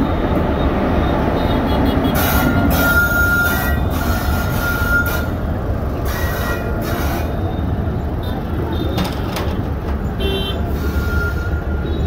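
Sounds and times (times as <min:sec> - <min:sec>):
train rumbling on track: 0:00.0 - 0:12.0
metal wheel squeal: 0:02.4 - 0:05.4.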